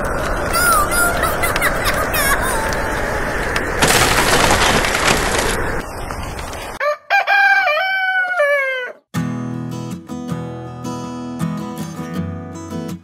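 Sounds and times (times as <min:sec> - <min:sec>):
rain hissing: 0:00.0 - 0:06.8
rooster crowing: 0:06.8 - 0:09.0
strummed acoustic guitar music: 0:09.2 - 0:13.0.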